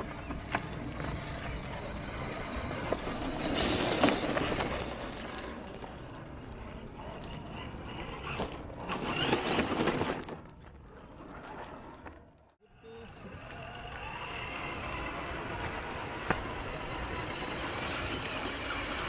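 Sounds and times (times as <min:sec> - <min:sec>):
rocks scraping and rattling: 0:00.0 - 0:12.6
tyres crunching on stones: 0:00.0 - 0:12.6.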